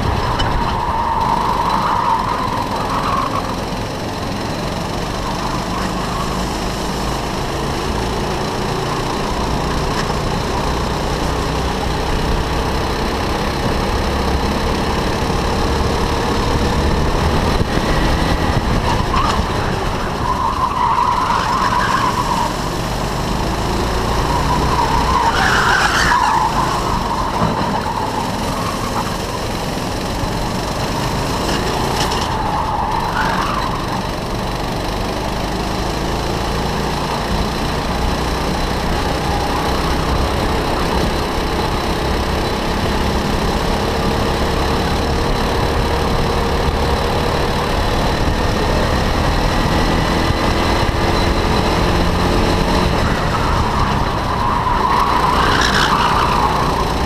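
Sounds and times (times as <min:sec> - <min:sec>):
go-kart engine running: 0:00.0 - 0:57.0
wind noise on microphone: 0:17.2 - 0:19.5
tyres squealing: 0:52.9 - 0:57.0.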